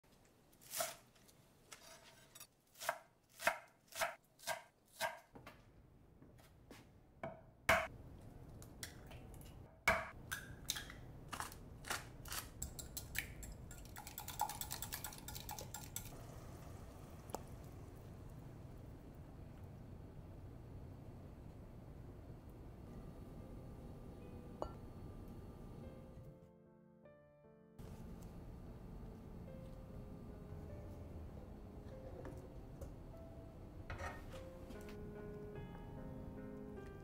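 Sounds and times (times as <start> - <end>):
eggs beaten in glass: 12.6 - 16.2
low background noise: 15.3 - 26.4, 27.8 - 37.0.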